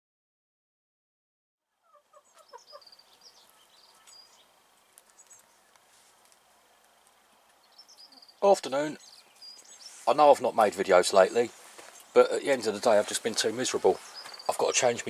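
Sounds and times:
small birds chirping: 0:01.7 - 0:15.0
hens clucking faintly: 0:01.8 - 0:09.0.

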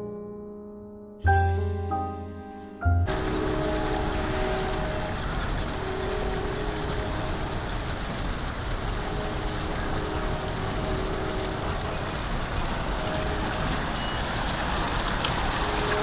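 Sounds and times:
fountain water splashing: 0:03.1 - 0:16.0.

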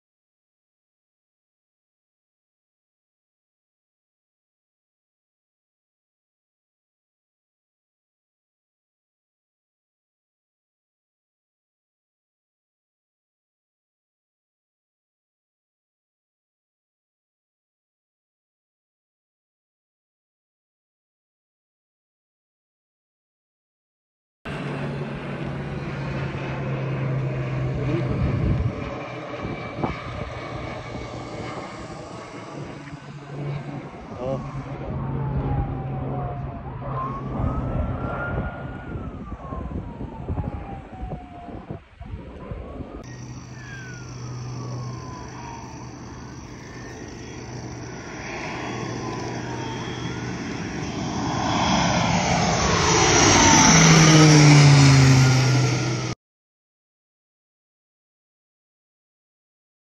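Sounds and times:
aircraft engine drone overhead: 0:24.5 - 0:56.2.

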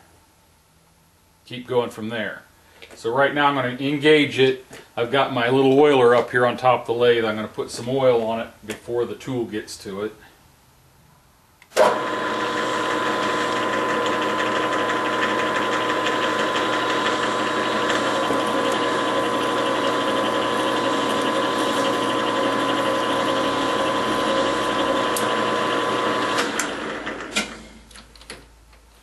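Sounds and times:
metal lathe gear whine: 0:11.8 - 0:27.3.

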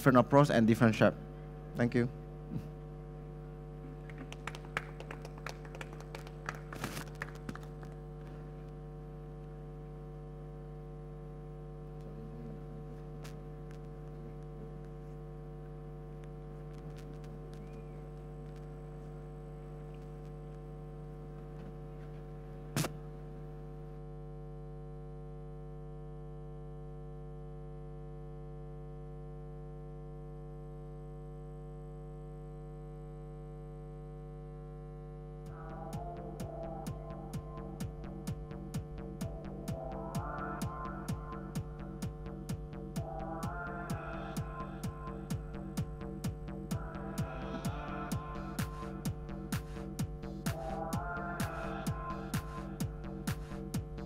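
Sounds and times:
electrical hum and buzz: 0:00.0 - 0:54.0.

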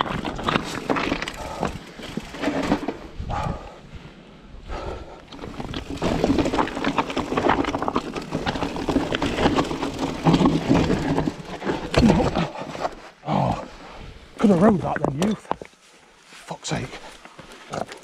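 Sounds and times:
mountain bike clattering over rocks: 0:00.0 - 0:03.2, 0:05.3 - 0:13.1.

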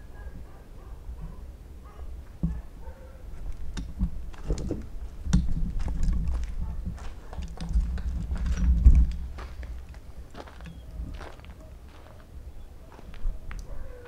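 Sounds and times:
footsteps on rubble: 0:03.4 - 0:12.3.

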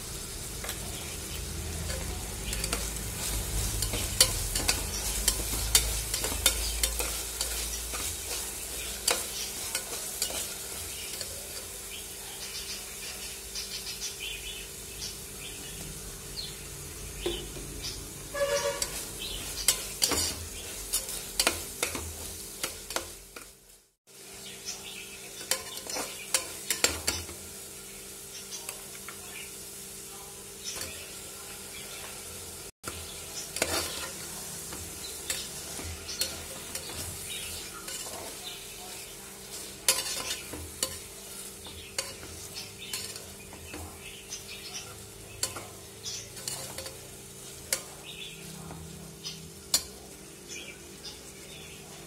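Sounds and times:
food sizzling in oil: 0:00.0 - 0:52.0
steel spatula scraping a pot: 0:01.8 - 0:11.8, 0:18.3 - 0:23.5, 0:25.4 - 0:27.3, 0:33.5 - 0:43.9, 0:45.4 - 0:47.9.

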